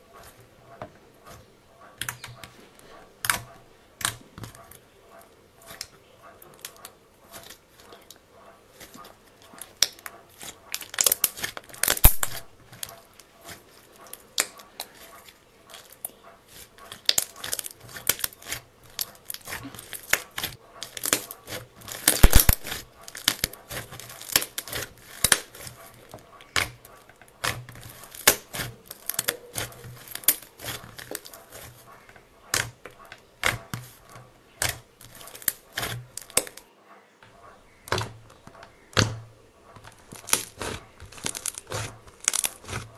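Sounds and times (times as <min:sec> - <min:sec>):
slime crackling and popping: 0:09.6 - 0:12.9, 0:15.7 - 0:25.7, 0:26.5 - 0:31.8, 0:34.6 - 0:36.6, 0:39.8 - 0:42.9.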